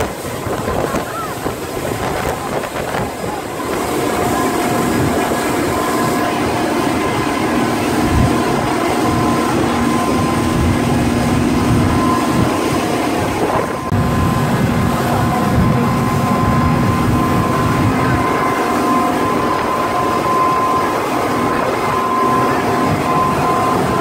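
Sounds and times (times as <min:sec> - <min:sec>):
hull rushing through water: 0:00.0 - 0:24.0
speedboat engines droning: 0:00.0 - 0:24.0.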